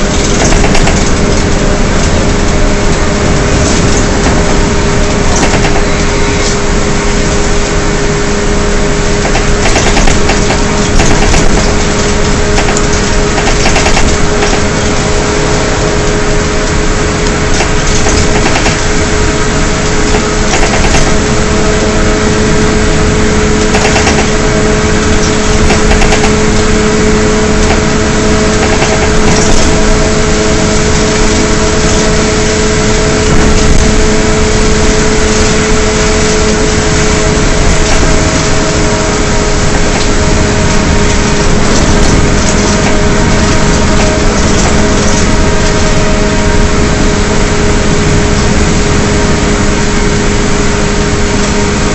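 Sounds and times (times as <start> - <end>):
knocks from bus body: 0.0 - 2.4, 3.4 - 6.6, 9.2 - 15.0, 20.0 - 21.4
bus drivetrain howl: 0.0 - 51.9
engine drone: 0.0 - 51.9
road noise: 0.0 - 51.9.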